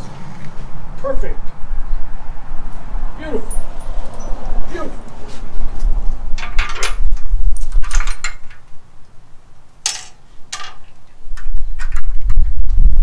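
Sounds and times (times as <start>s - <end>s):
steel parts clanking: 6.4s - 8.7s, 9.8s - 12.2s.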